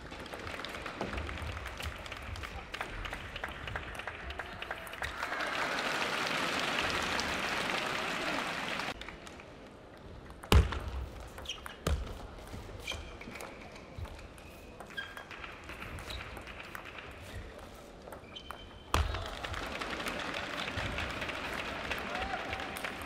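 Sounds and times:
crowd applauding: 0:00.0 - 0:09.4, 0:19.1 - 0:23.0.

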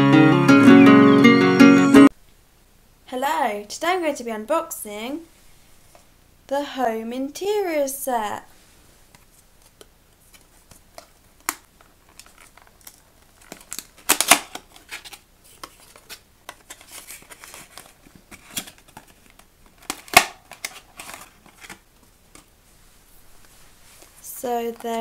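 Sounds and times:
plastic bag crinkling: 0:10.4 - 0:21.9.

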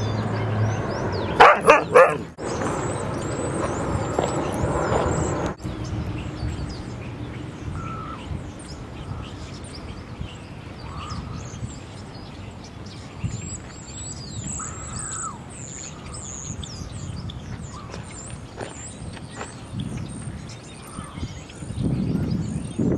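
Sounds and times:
small birds chirping: 0:00.0 - 0:22.9.

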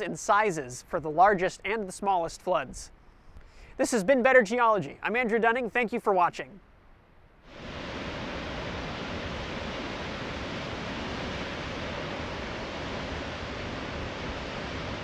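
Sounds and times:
waterfall rushing: 0:07.5 - 0:15.0.

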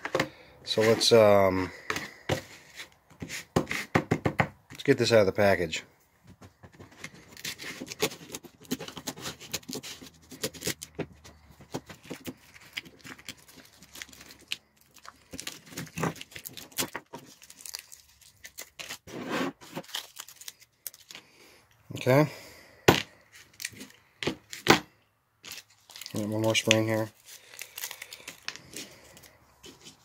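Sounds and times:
plastic packaging crinkling and tearing: 0:06.9 - 0:11.0, 0:11.7 - 0:21.3, 0:23.3 - 0:24.7, 0:25.4 - 0:30.0.

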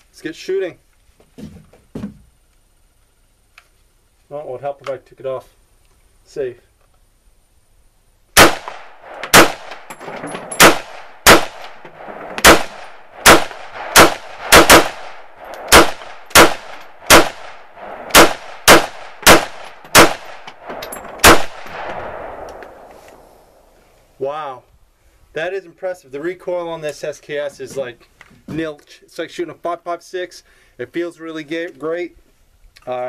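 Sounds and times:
rifle shots echoing: 0:08.4 - 0:23.4.

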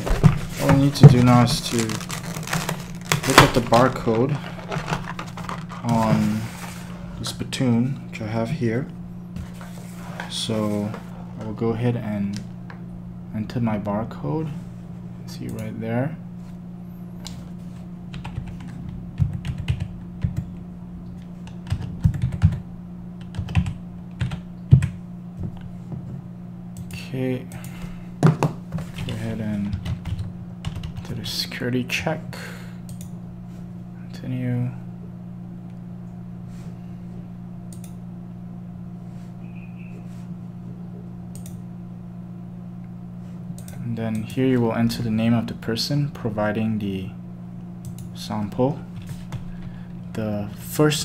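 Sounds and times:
low hum: 0:00.0 - 0:51.0
keyboard typing: 0:18.1 - 0:20.5, 0:21.4 - 0:22.6, 0:23.2 - 0:25.0
computer mouse clicks: 0:37.7 - 0:38.0, 0:41.3 - 0:41.6.

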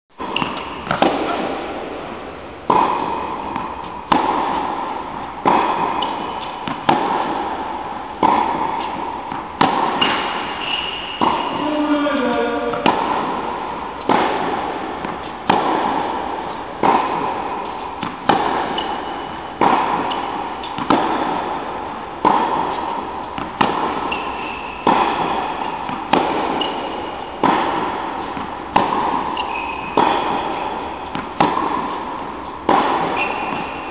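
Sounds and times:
tennis racket hitting ball: 0:00.1 - 0:33.9
shoe squeaks: 0:10.0 - 0:12.8, 0:24.1 - 0:24.8, 0:29.4 - 0:30.0, 0:33.2 - 0:33.9.

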